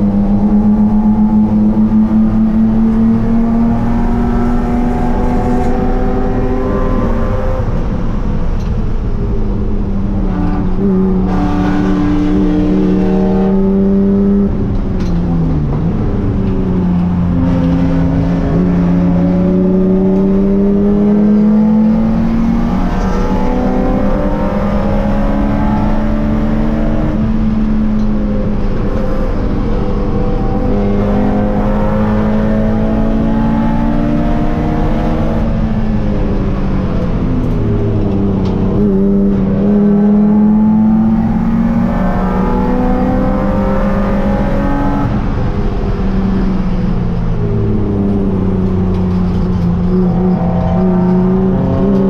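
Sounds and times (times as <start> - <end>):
race car engine revving: 0.0 - 52.0.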